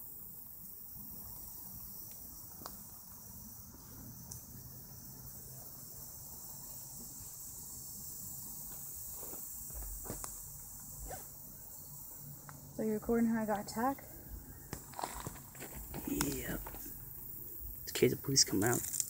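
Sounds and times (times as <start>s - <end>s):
insects chorus: 0.0s - 19.0s
faint ticks: 2.0s - 2.9s.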